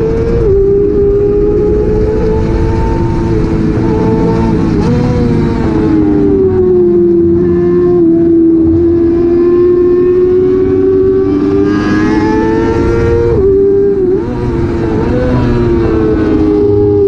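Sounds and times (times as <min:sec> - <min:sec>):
motorcycle engine at high revs: 0:00.0 - 0:17.0
wind rush: 0:00.0 - 0:17.0.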